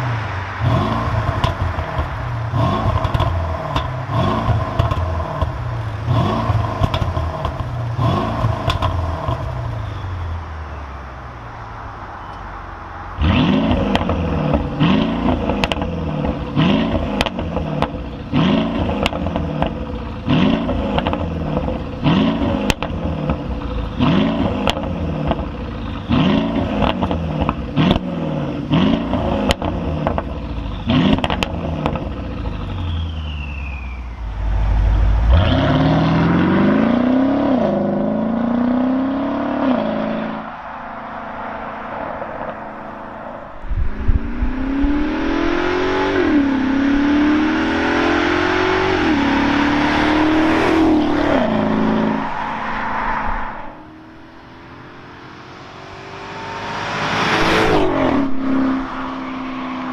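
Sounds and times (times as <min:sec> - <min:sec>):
car engine accelerating hard: 0:00.0 - 0:09.8, 0:13.1 - 0:59.9
car engine throttle blips: 0:00.0 - 0:12.6, 0:13.2 - 0:59.9
exhaust pops and crackles: 0:01.1 - 0:05.7, 0:06.5 - 0:09.6, 0:15.3 - 0:20.0, 0:20.6 - 0:23.8, 0:24.4 - 0:25.6, 0:26.7 - 0:28.1, 0:29.1 - 0:30.5, 0:31.1 - 0:33.1.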